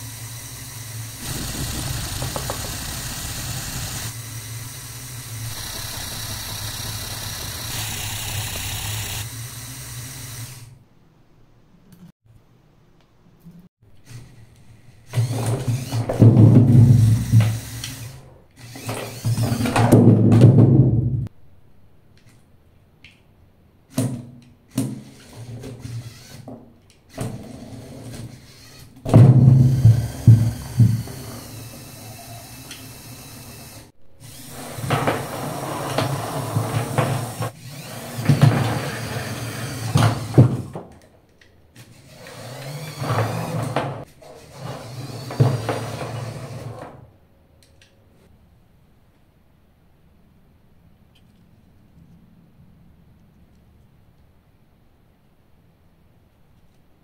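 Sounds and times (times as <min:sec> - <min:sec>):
gears whirring: 0:00.0 - 0:10.8, 0:14.0 - 0:16.2, 0:17.0 - 0:19.8, 0:25.1 - 0:26.5, 0:27.2 - 0:40.7, 0:41.8 - 0:43.8
small electric motors whirring: 0:00.0 - 0:10.8, 0:14.0 - 0:16.2, 0:16.9 - 0:19.8, 0:24.7 - 0:26.5, 0:27.1 - 0:40.7, 0:41.8 - 0:46.7.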